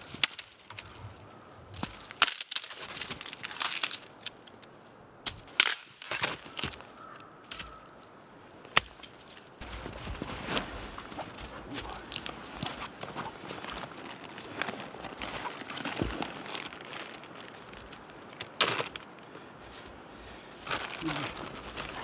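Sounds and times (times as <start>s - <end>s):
dry sticks snapping: 0.0s - 9.6s, 11.0s - 19.5s
snow crunching under snowshoes: 9.2s - 22.0s.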